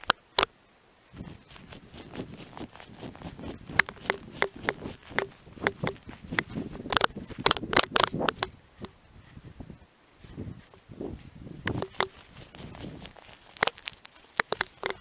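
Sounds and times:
footsteps crunching in snow: 1.1s - 8.4s, 11.7s - 15.0s.

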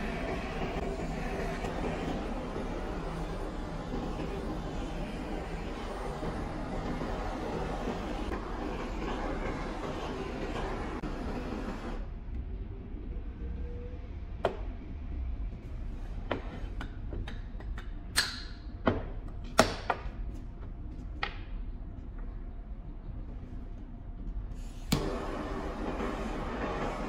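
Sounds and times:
gas torch hissing: 0.0s - 12.0s, 24.5s - 27.0s.

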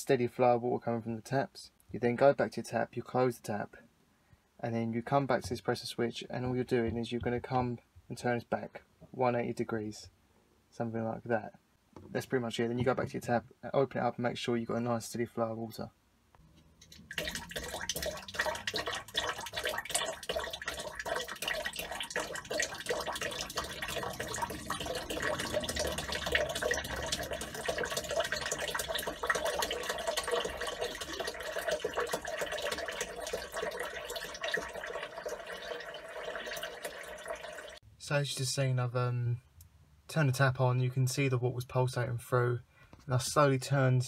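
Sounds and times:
pump rapid clicking: 16.8s - 37.0s
water spurting from tap: 16.8s - 37.8s.

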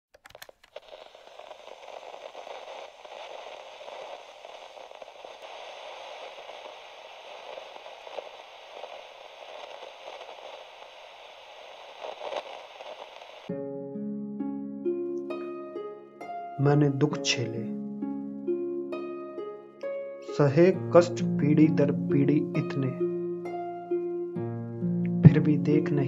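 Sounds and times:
static-like crackling: 0.1s - 13.5s, 22.2s - 26.0s.

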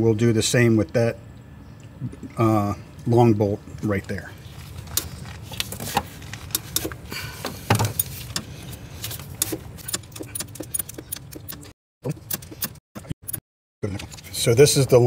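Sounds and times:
socket wrench clicking: 9.4s - 13.4s.

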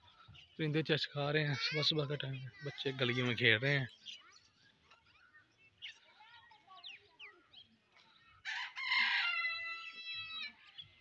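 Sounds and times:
small birds chirping: 0.0s - 11.0s
rooster crowing: 8.5s - 10.4s.

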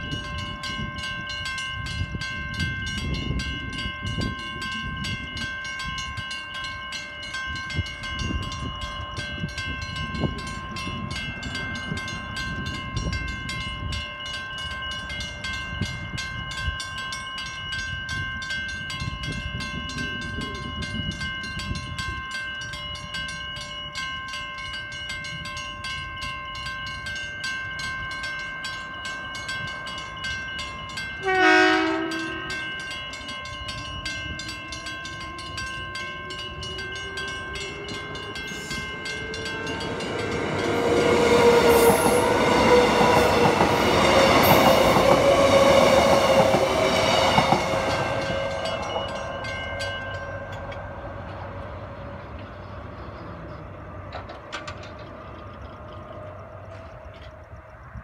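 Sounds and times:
level crossing bells ringing: 0.0s - 54.3s
train wheel noise: 0.0s - 58.0s
train horn blast: 31.2s - 32.7s, 40.6s - 52.3s
electric train motor whine: 31.2s - 58.0s.

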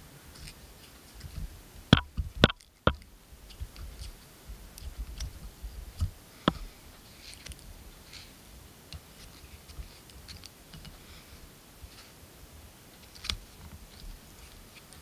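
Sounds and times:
sharp clicks and taps: 2.0s - 3.1s.

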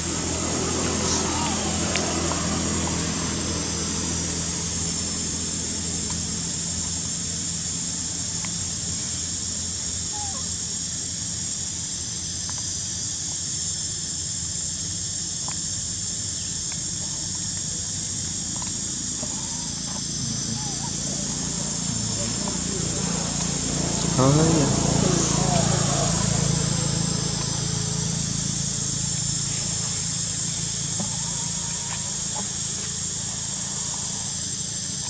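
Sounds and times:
insect chorus drone: 0.0s - 35.0s
low background hum: 0.0s - 35.0s.

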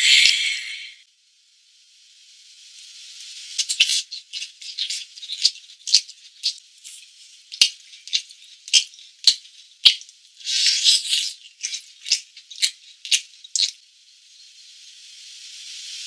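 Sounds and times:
food sizzling on griddle: 1.3s - 16.0s
sharp crackles and pops: 3.5s - 13.8s.

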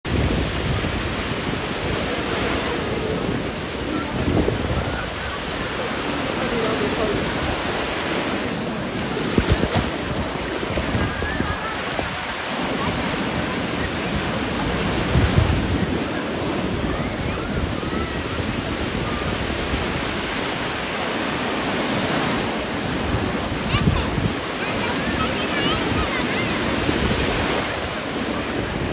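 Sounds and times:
small waves breaking on beach: 0.1s - 28.9s
wind buffeting microphone: 0.1s - 28.9s.

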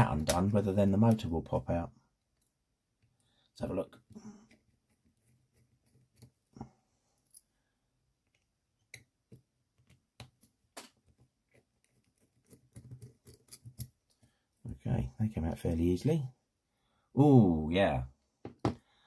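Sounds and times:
fingers handling plastic parts: 3.9s - 6.5s, 8.1s - 14.6s
screwdriver clicking and scraping: 8.2s - 14.3s.

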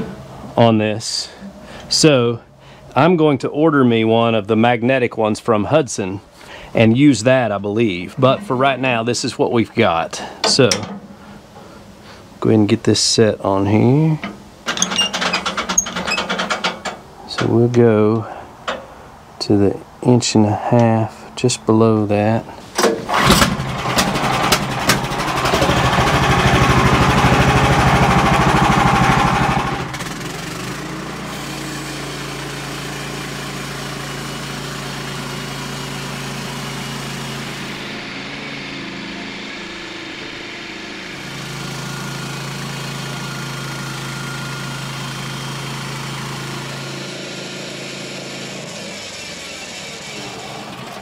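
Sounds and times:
sawmill gas engine running: 22.8s - 51.0s.

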